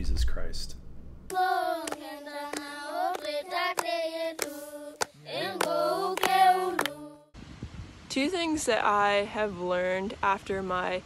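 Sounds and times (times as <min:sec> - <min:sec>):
rhythmic hand clapping: 0:01.3 - 0:07.1
lower voice singing: 0:01.3 - 0:07.2
voices singing held notes: 0:01.3 - 0:07.4.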